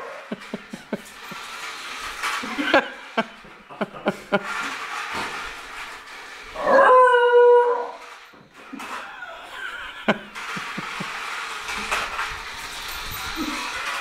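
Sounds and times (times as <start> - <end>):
dog howling: 6.6 - 8.0.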